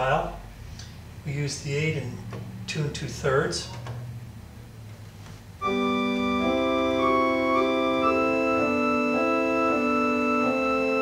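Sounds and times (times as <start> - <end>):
church organ playing: 5.6 - 11.0.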